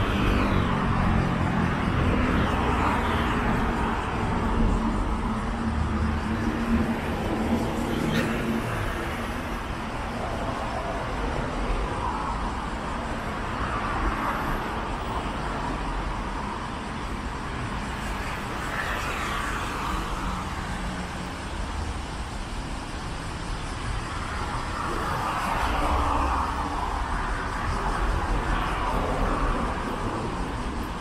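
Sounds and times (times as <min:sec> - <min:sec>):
cars passing: 0:00.0 - 0:31.0.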